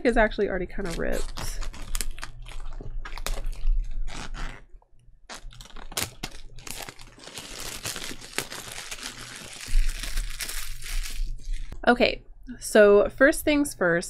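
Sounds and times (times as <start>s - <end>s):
plastic shrink-wrap crinkling: 0.7s - 4.7s, 5.3s - 11.8s.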